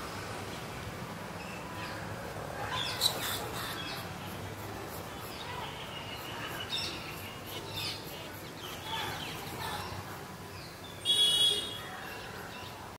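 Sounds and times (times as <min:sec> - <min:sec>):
outdoor background noise: 0:00.0 - 0:12.9
birds chirping: 0:02.7 - 0:12.8.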